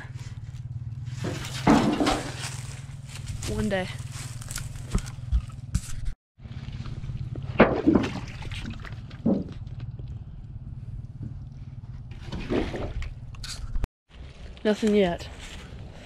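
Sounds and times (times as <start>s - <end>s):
steady low rumble: 0.0s - 5.7s, 6.4s - 12.3s
footsteps squelching in mud: 1.3s - 9.9s.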